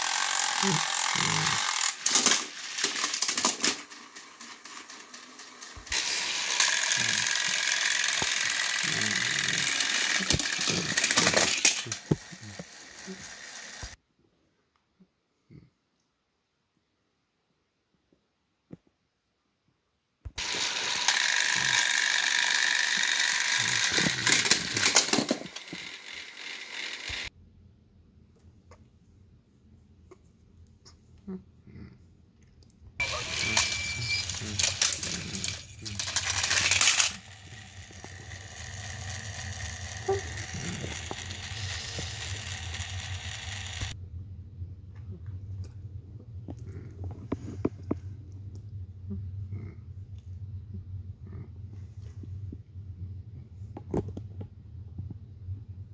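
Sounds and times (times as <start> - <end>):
toy train motors whirring: 0.0 - 14.0, 20.4 - 27.3, 33.0 - 44.0
wheels rattling on plastic track: 0.0 - 14.0, 20.4 - 27.3, 33.0 - 44.0.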